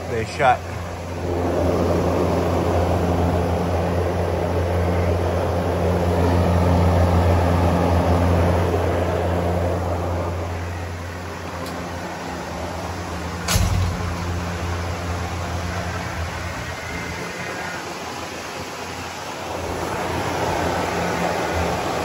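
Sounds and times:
exhaust fan motor hum: 0.0s - 22.0s
rush of moving air: 0.8s - 22.0s.

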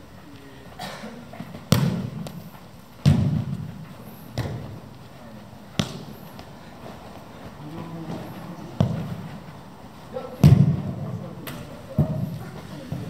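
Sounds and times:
ball kicks with echo: 1.5s - 2.4s, 3.0s - 4.8s, 5.7s - 6.5s, 8.8s - 9.3s, 10.4s - 13.0s.

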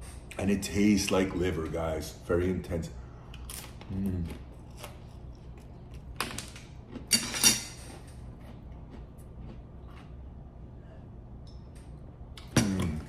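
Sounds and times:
chewing cracker: 7.9s - 10.2s.

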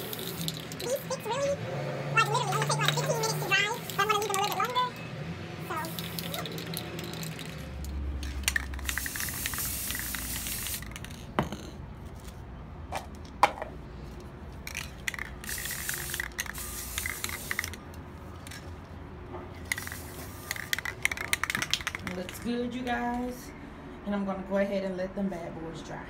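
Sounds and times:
spray paint can hissing: 0.0s - 1.6s, 2.2s - 4.9s, 5.6s - 11.2s, 14.7s - 17.8s, 19.6s - 22.2s.

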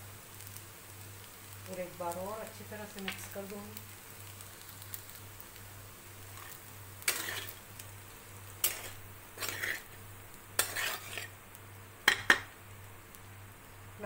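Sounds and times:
spoon scraping cookware: 6.4s - 7.6s, 8.6s - 10.0s, 10.6s - 11.3s.

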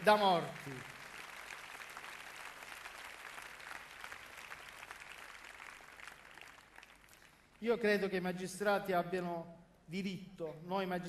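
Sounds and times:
faint audience applauding: 0.0s - 7.6s.

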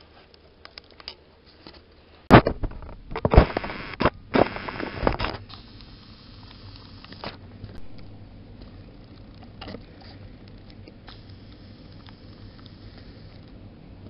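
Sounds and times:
faint low hum: 0.0s - 14.0s
microphone handling scraping: 2.3s - 5.4s.

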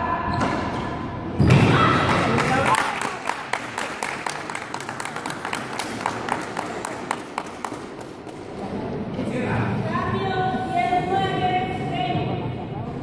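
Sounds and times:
crowd clapping: 2.1s - 8.4s.

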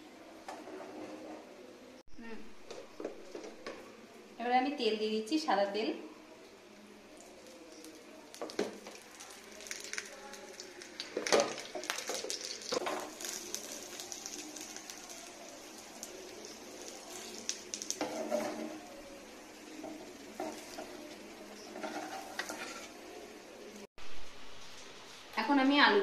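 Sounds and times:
wooden spatula scraping a pan: 0.5s - 1.6s, 18.0s - 18.9s, 19.8s - 23.1s
flatbread sizzling in oil: 7.0s - 23.9s.

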